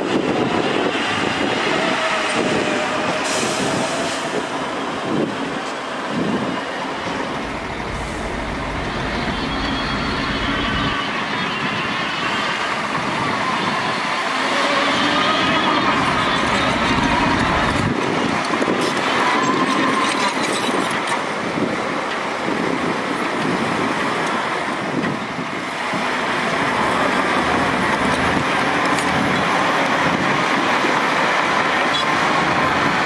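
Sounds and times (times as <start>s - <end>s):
dump truck diesel engine: 0.1s - 19.6s, 23.4s - 33.0s
bulldozer engine running: 6.2s - 11.0s, 15.5s - 19.0s.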